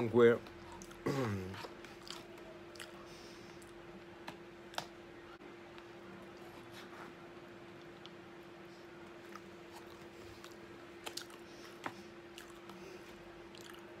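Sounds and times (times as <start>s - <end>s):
person chewing food: 0.5s - 3.8s, 9.0s - 14.0s.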